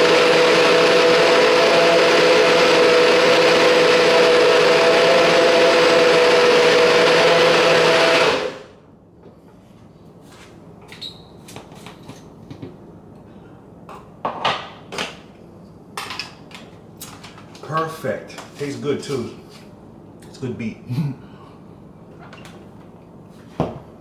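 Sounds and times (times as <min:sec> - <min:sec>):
blender motor whirring: 0:00.0 - 0:08.7.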